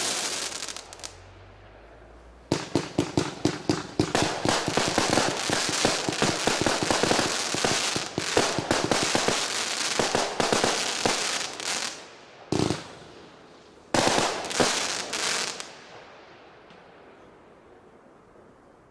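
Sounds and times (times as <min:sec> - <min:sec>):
fireworks popping and banging: 0:00.0 - 0:01.2, 0:02.5 - 0:13.0, 0:14.0 - 0:15.7.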